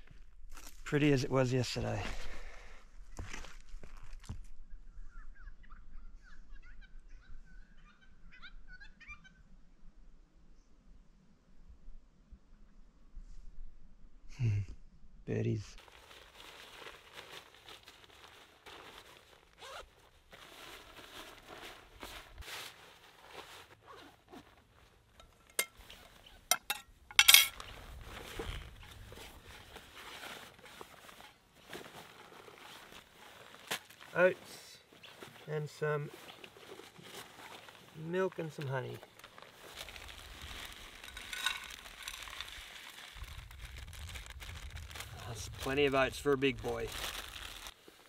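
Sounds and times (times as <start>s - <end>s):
clothing rustling: 15.8s - 34.2s, 34.9s - 45.8s
metal cookware clinking: 26.5s - 27.6s.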